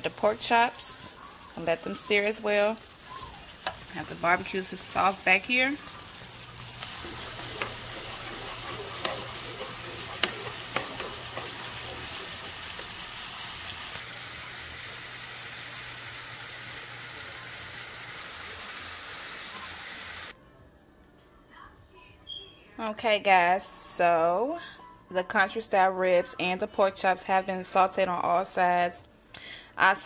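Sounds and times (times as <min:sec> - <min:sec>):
meat sizzling in a frying pan: 0:00.0 - 0:20.4
spatula clicking on saucepan: 0:06.8 - 0:13.1.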